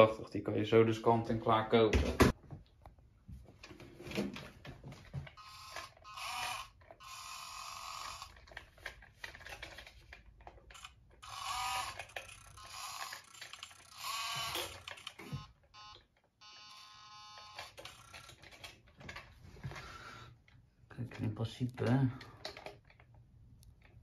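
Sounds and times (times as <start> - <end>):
toy truck motor whirring: 5.4 - 9.0, 10.7 - 18.7.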